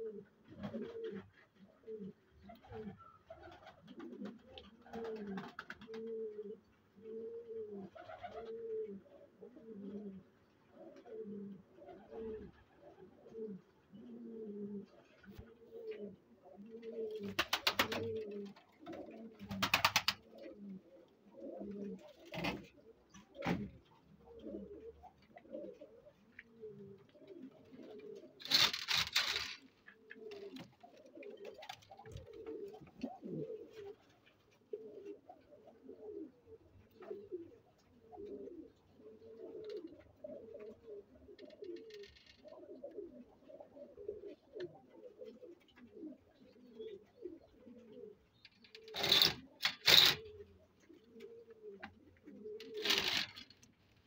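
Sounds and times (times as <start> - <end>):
pigeons cooing: 0.0 - 54.0
rustling noises: 25.6 - 35.1, 48.5 - 54.0.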